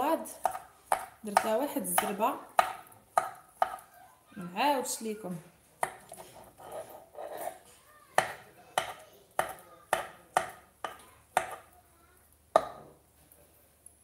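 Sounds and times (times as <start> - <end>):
knife chopping on wooden board: 0.4 - 3.8, 5.8 - 6.2, 8.2 - 11.7, 12.6 - 12.8.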